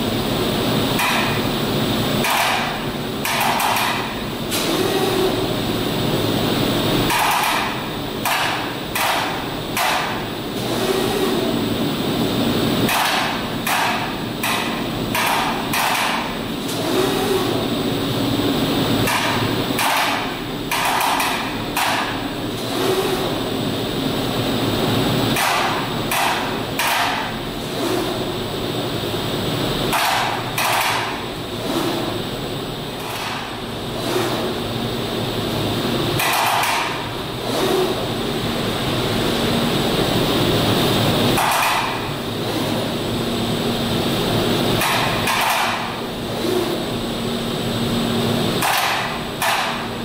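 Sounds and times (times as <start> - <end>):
steady machine hum: 0.0 - 50.0
sharp mechanical knocks: 1.0 - 1.4, 2.2 - 4.9, 7.1 - 11.1, 12.8 - 17.3, 19.0 - 22.8, 25.3 - 28.1, 29.9 - 32.1, 33.0 - 34.5, 36.2 - 38.0, 41.3 - 42.8, 44.7 - 46.7, 48.6 - 50.0.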